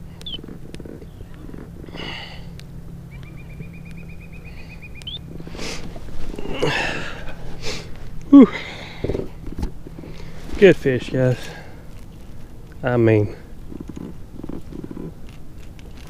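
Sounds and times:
rustling and handling noise: 0:00.0 - 0:03.0, 0:05.1 - 0:16.0
high trill of rapid ticks: 0:00.1 - 0:01.6, 0:02.5 - 0:05.3.

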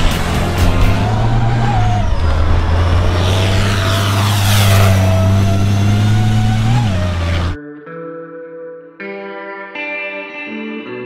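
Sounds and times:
truck engine whining at high revs: 0:00.0 - 0:07.6.

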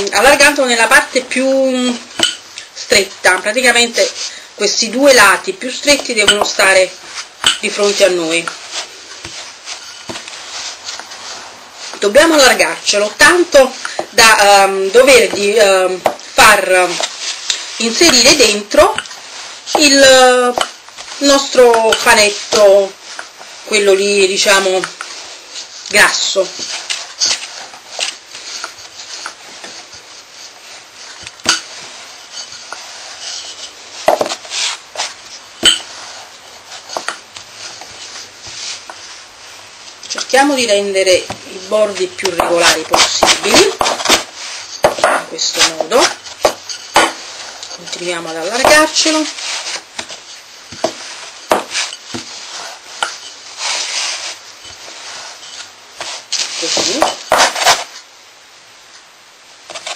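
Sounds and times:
rolling pin rubbing dough: 0:00.0 - 0:58.1
rolling pin knocking on board: 0:50.8 - 0:52.3.

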